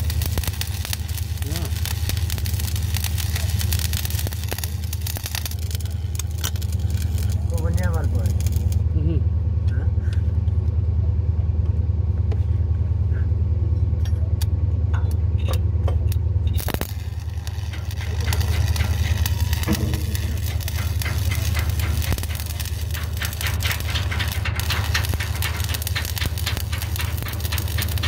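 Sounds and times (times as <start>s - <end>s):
stick welding arc crackling: 0.0s - 9.0s, 16.0s - 28.0s
low hum: 0.0s - 28.0s.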